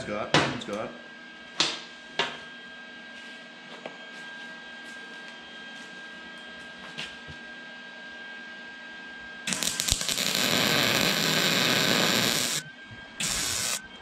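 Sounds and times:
welder cooling fan whine: 0:00.0 - 0:14.0
welding arc crackling and hissing: 0:09.5 - 0:13.8.

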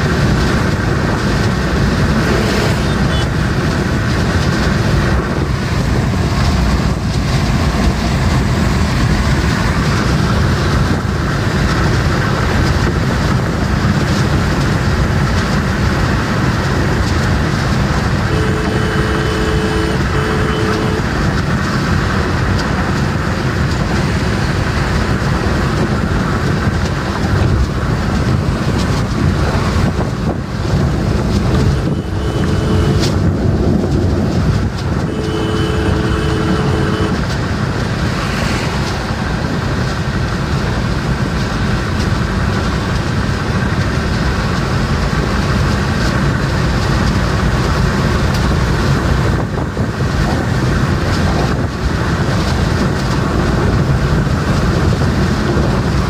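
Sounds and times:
car cabin road and wind noise: 0:00.0 - 0:56.0
two-tone vehicle horn: 0:02.2 - 0:03.4, 0:18.2 - 0:21.3, 0:31.6 - 0:33.3, 0:34.9 - 0:37.4.

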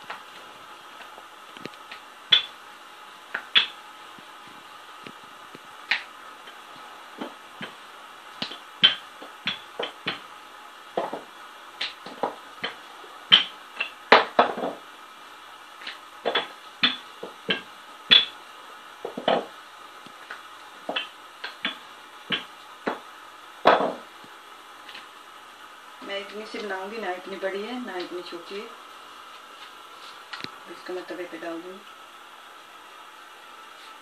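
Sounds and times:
faint steady hum: 0:00.0 - 0:34.0
rolling pin clacking on board: 0:23.6 - 0:24.1.

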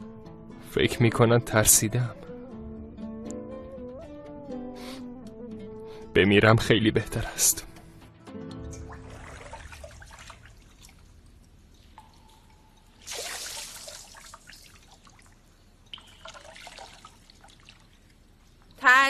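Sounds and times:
water dripping and splashing: 0:08.7 - 0:18.8
water pouring from a bowl: 0:08.8 - 0:18.7.

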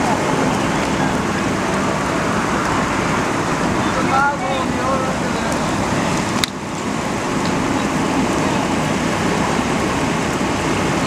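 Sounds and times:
fire roaring and crackling: 0:00.0 - 0:11.0.

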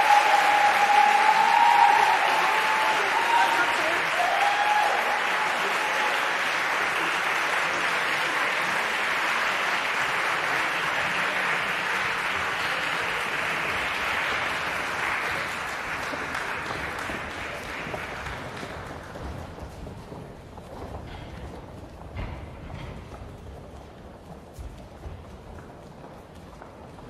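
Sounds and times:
audience applauding: 0:00.0 - 0:20.1.

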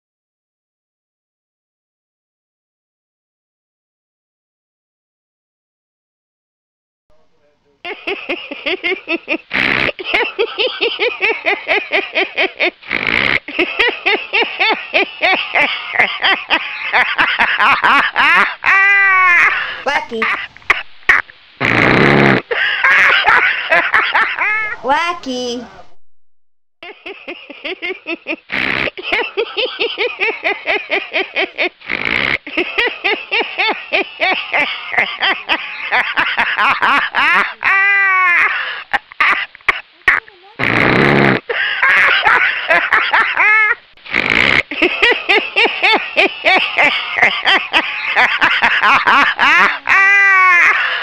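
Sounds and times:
person giggling: 0:07.8 - 0:12.8, 0:13.4 - 0:25.8, 0:26.8 - 0:31.7, 0:32.5 - 0:40.4, 0:41.5 - 0:43.8, 0:44.6 - 0:51.0
woman laughing hard: 0:07.9 - 0:12.8, 0:13.4 - 0:21.3, 0:22.5 - 0:24.9, 0:26.8 - 0:31.8, 0:32.5 - 0:39.5, 0:41.5 - 0:43.8, 0:44.6 - 0:51.0
gasping in-breaths: 0:50.8 - 0:51.0.

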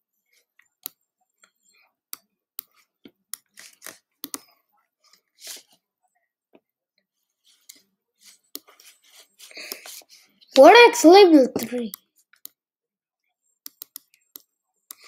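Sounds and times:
computer mouse clicks: 0:03.4 - 0:04.5, 0:13.6 - 0:15.0.

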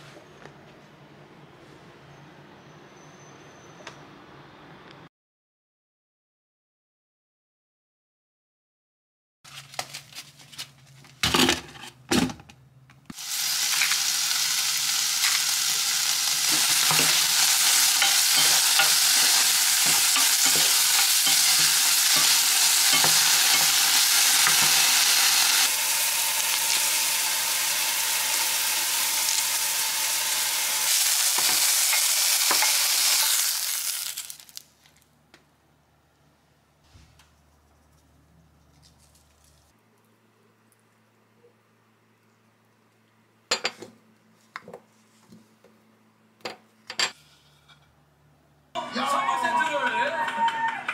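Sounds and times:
meat sizzling in a frying pan: 0:13.1 - 0:34.6.

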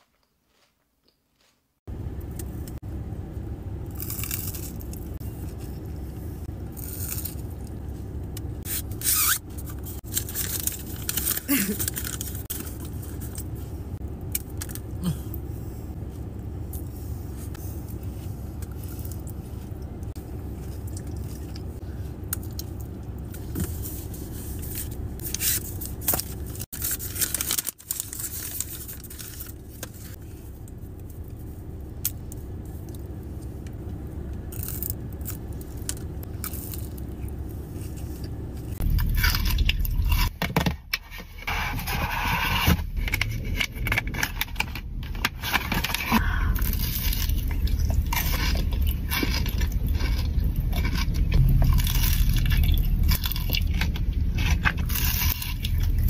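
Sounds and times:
low hum inside car: 0:01.8 - 0:56.0
packaging crinkling: 0:10.0 - 0:13.4, 0:25.5 - 0:30.2, 0:41.8 - 0:56.0.

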